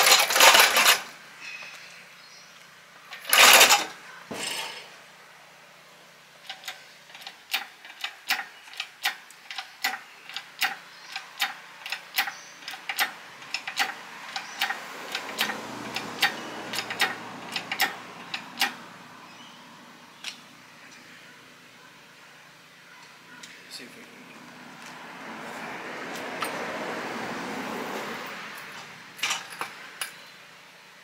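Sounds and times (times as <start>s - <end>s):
hydraulic hoist pump clicks: 3.1s - 4.0s, 6.4s - 18.8s.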